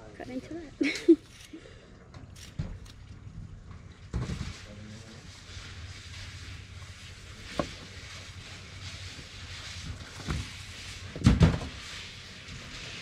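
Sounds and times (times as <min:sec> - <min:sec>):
knocks and thumps of fish handling: 0:07.4 - 0:08.0, 0:09.9 - 0:11.8.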